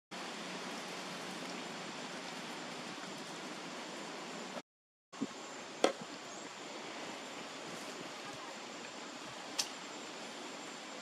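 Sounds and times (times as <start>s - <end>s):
outdoor background hiss: 0.1s - 4.6s, 5.2s - 11.0s
faint click: 9.6s - 9.8s.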